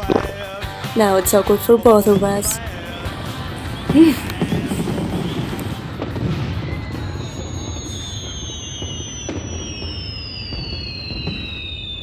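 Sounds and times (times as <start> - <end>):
fireworks crackling and rumbling: 0.0 - 12.0
fireworks popping: 0.0 - 12.0
falling firework whistle: 3.6 - 12.0.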